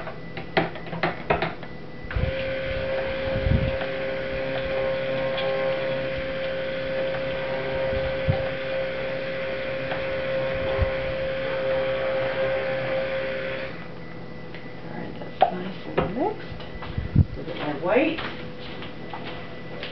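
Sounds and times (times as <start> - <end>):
stick blender motor hum: 2.1 - 14.0.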